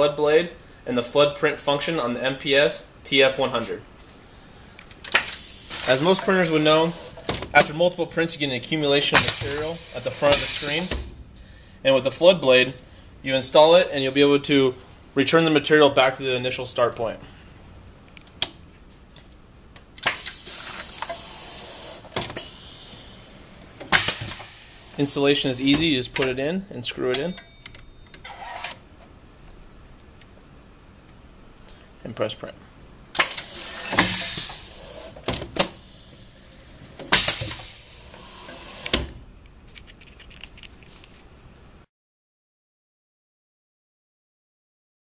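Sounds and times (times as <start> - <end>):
compressed air hissing: 4.2 - 7.9, 8.7 - 11.9, 20.0 - 26.0, 33.2 - 39.2
machine running noise: 5.0 - 11.7, 20.0 - 26.4, 33.1 - 40.0
machine clunk: 7.1 - 7.8, 9.2 - 11.3, 23.8 - 24.9, 33.2 - 35.8, 37.0 - 39.2.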